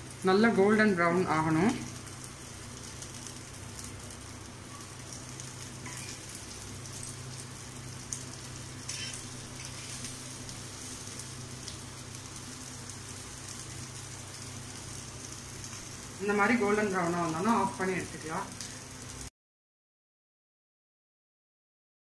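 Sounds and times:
food sizzling in a pan: 0:00.0 - 0:19.3
spatula scraping and tapping: 0:08.9 - 0:10.1.

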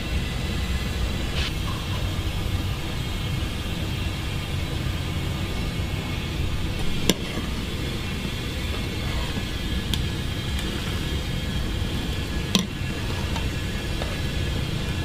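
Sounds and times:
pot boiling: 0:00.0 - 0:15.0
ladle clinking in pot: 0:11.9 - 0:15.0.

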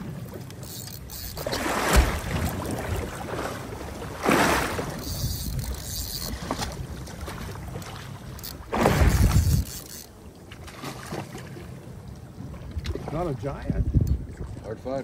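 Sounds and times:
water splashing against boat hull: 0:00.0 - 0:11.8
wind on microphone: 0:04.2 - 0:07.0, 0:08.7 - 0:10.0, 0:12.7 - 0:14.8.

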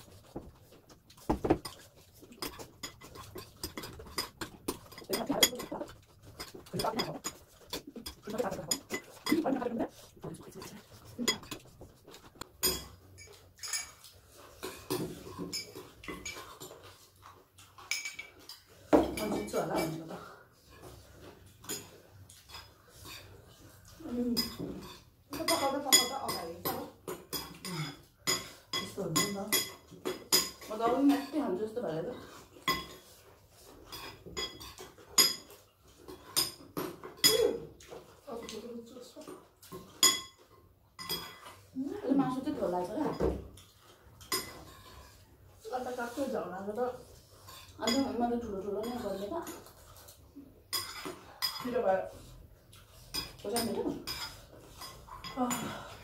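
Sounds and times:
spoons clinking on ceramic bowls: 0:01.5 - 0:16.8, 0:17.8 - 0:20.1, 0:24.3 - 0:31.6, 0:32.6 - 0:33.1, 0:33.8 - 0:38.7, 0:39.7 - 0:41.6, 0:42.3 - 0:45.0, 0:47.4 - 0:48.2, 0:50.7 - 0:51.8, 0:53.1 - 0:56.0.

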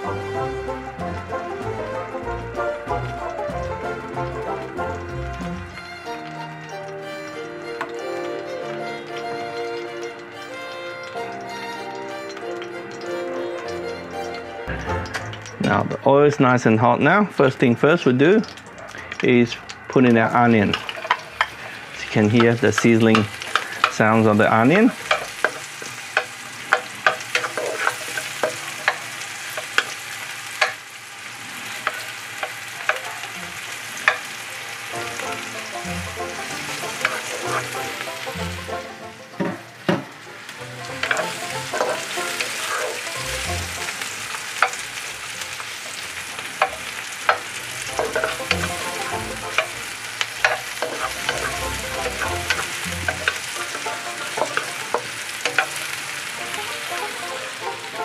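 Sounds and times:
onion sizzling in hot oil: 0:00.0 - 0:58.0
wooden spatula scraping pan: 0:24.8 - 0:30.0, 0:36.3 - 0:38.5, 0:41.0 - 0:43.2, 0:46.6 - 0:49.8, 0:50.4 - 0:55.9.

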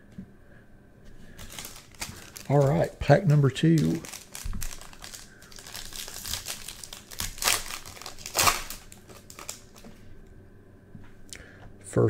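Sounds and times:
foil wrapper crinkling: 0:01.3 - 0:09.9.

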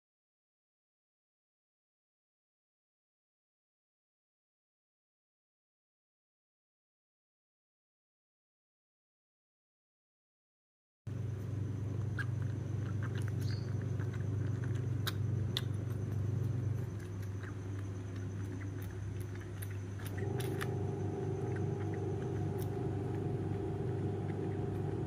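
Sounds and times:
low mechanical hum: 0:11.1 - 0:25.0.

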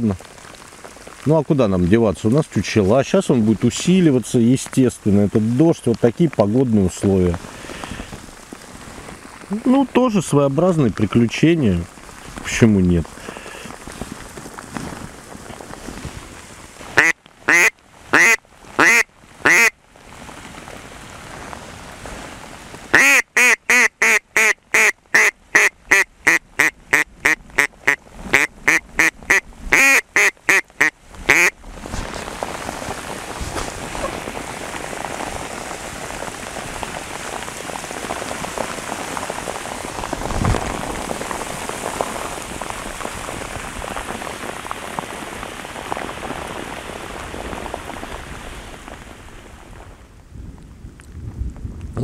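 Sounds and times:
heavy rain on canvas: 0:00.0 - 0:52.0
duck call quacking: 0:17.0 - 0:19.7, 0:22.9 - 0:31.5.

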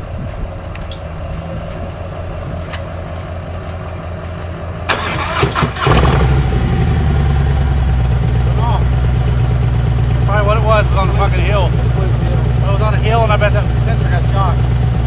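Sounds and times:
motorcycle engine idling: 0:00.0 - 0:15.0
starter cranking: 0:02.6 - 0:06.4.

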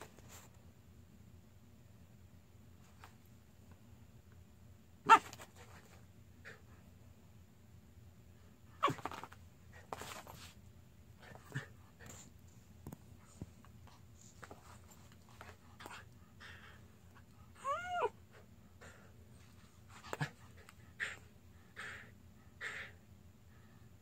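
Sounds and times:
dog whining: 0:08.8 - 0:09.3, 0:17.5 - 0:19.0.

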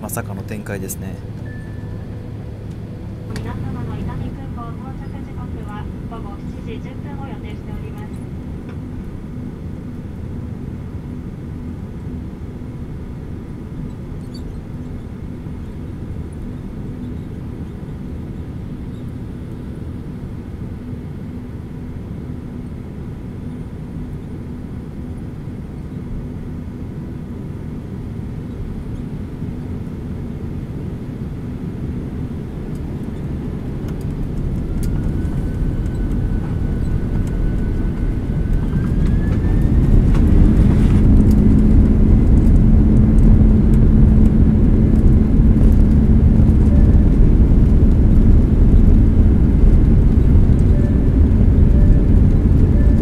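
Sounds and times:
engine whine rising in pitch: 0:00.0 - 0:06.6, 0:32.7 - 0:53.0
jet engine low rumble: 0:00.0 - 0:53.0.

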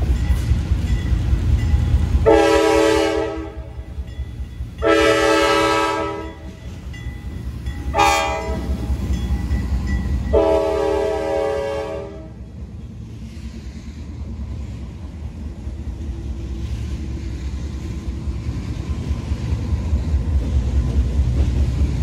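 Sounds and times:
locomotive air horn: 0:02.2 - 0:03.8, 0:04.8 - 0:06.5, 0:07.9 - 0:08.8, 0:10.3 - 0:12.4.

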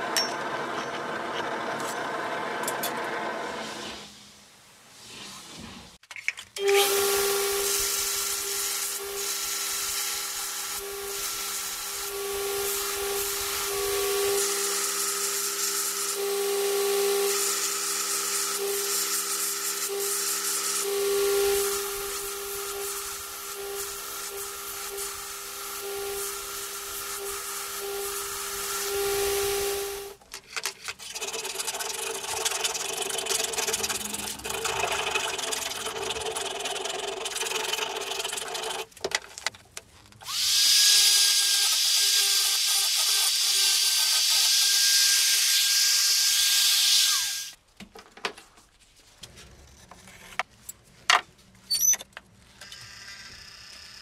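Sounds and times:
power tool grinding: 0:30.9 - 0:38.9, 0:40.2 - 0:47.6.

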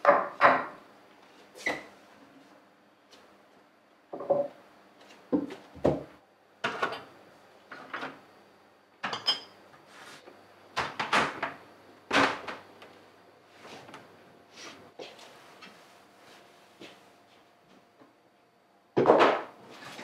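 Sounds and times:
kitchen items knocking and clattering: 0:00.0 - 0:00.8, 0:04.2 - 0:04.5, 0:05.4 - 0:07.1, 0:10.8 - 0:12.6, 0:19.0 - 0:20.0.

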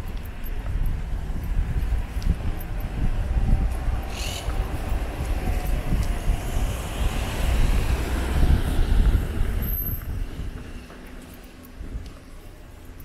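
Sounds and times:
street traffic: 0:00.0 - 0:13.0
wind rumbling on microphone: 0:00.0 - 0:13.0.

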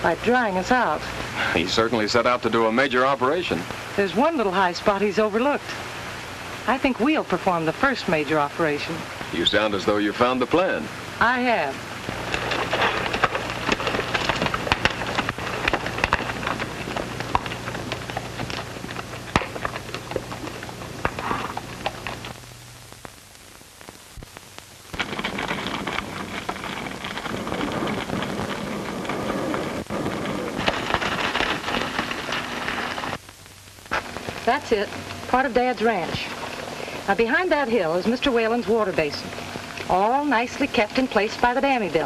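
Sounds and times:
crackling hiss: 0:00.0 - 0:42.0
low hum: 0:10.8 - 0:42.0.

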